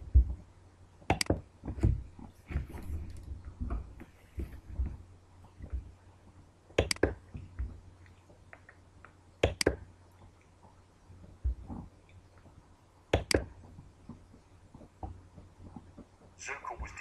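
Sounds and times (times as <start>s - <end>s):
low steady hum: 0.0s - 17.0s
computer mouse button clicking: 6.8s - 7.1s, 9.4s - 9.8s.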